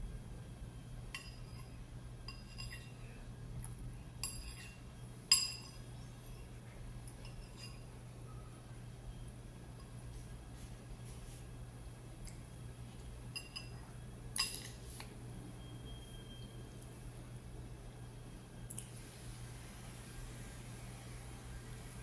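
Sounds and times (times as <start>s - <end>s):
low steady hum: 0.0s - 22.0s
spoon clinking against ceramic bowl: 1.1s - 1.7s, 2.3s - 3.0s, 4.2s - 5.9s, 7.2s - 7.9s, 13.3s - 13.8s.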